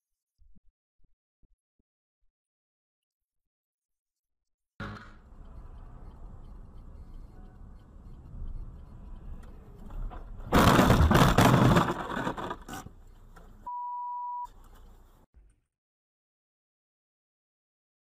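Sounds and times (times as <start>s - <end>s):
road and engine noise: 4.8s - 13.7s, 14.5s - 15.3s
single-tone beep: 13.7s - 14.5s.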